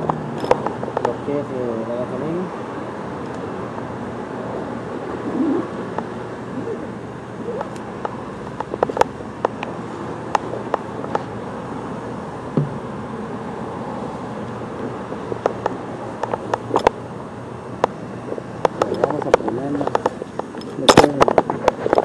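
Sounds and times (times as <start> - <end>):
sharp clicks and knocks: 0.0 - 1.2, 7.6 - 9.7, 12.5 - 12.8, 15.1 - 17.0, 17.8 - 22.0
traffic and engines humming: 0.0 - 22.0.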